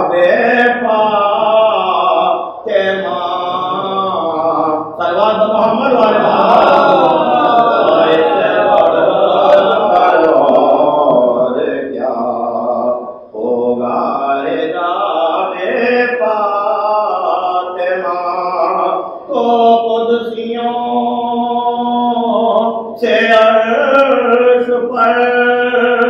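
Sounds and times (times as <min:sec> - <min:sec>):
man chanting melodic recitation: 0:00.0 - 0:26.0.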